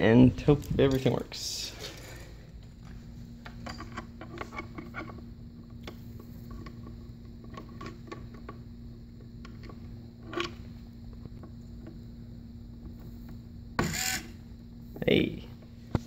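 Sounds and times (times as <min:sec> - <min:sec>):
steady low hum: 0:00.0 - 0:16.0.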